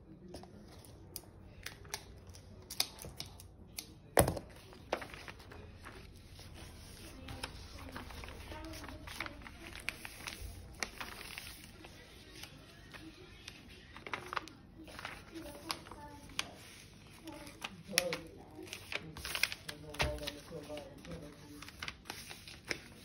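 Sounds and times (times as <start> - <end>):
paper rustling and sliding: 4.7 - 23.0.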